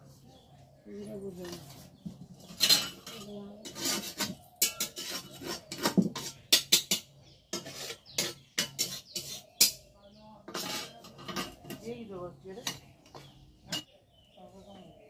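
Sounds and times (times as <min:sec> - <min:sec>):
metal spatula scraping iron pan: 0:01.4 - 0:11.9.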